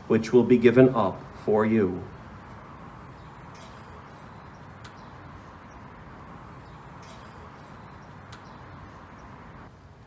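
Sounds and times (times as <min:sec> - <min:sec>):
low hiss and rumble: 0:00.0 - 0:10.0
faint clicks: 0:04.8 - 0:05.0, 0:08.2 - 0:08.6.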